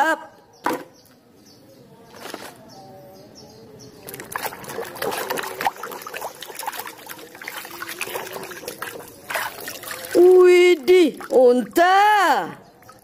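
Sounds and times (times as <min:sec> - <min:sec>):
water dripping: 0:04.0 - 0:13.0
water splashing in a plastic tub: 0:04.0 - 0:13.0.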